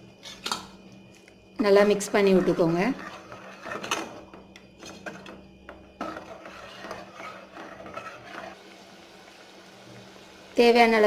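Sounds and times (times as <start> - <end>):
steady low hum: 0.0 - 11.0
ladle scraping and knocking pot: 1.8 - 8.6.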